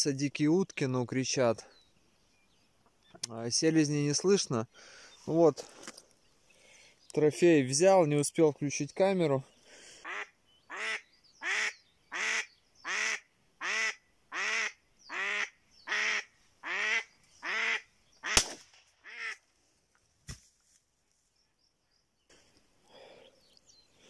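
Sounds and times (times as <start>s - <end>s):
duck decoy quacking: 10.0s - 18.4s, 19.0s - 19.4s.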